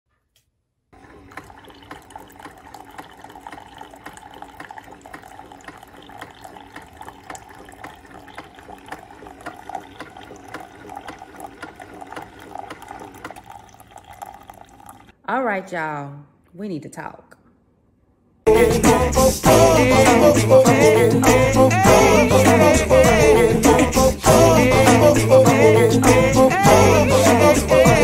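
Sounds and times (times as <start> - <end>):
coffee maker hum: 1.0 - 15.1, 18.5 - 28.0
coffee pouring into mug: 1.0 - 15.1.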